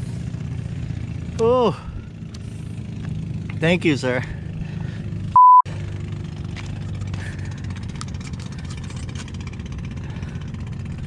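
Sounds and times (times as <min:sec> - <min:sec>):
low engine hum: 0:00.0 - 0:11.0
censor bleep: 0:05.4 - 0:05.7.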